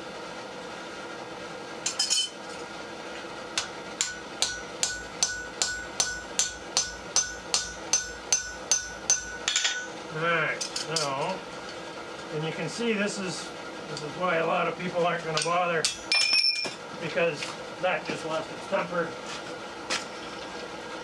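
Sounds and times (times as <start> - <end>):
hammer striking punch on anvil: 3.6 - 10.0, 15.4 - 16.8.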